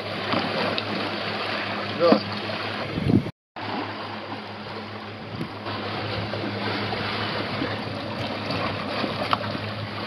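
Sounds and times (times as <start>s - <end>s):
sea water rushing past boat: 0.0s - 10.0s.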